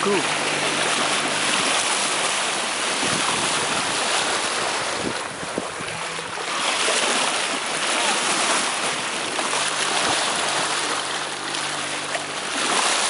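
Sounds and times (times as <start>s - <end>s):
water rushing along a hull: 0.0s - 13.0s
wind buffeting microphone: 0.3s - 7.7s.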